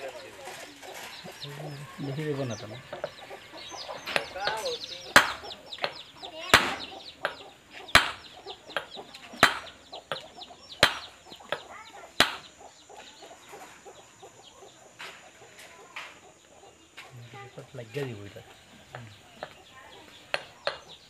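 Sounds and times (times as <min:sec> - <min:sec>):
hammer striking steel punch: 0:08.0 - 0:08.2, 0:09.4 - 0:09.7.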